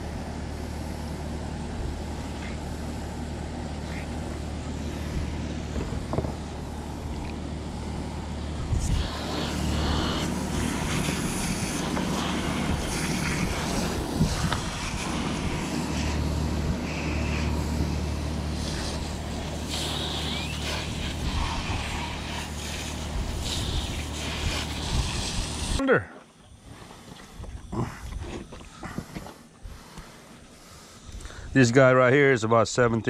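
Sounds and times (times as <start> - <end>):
pressure washer motor hum: 0.0 - 25.8
water spraying hiss: 8.7 - 25.8.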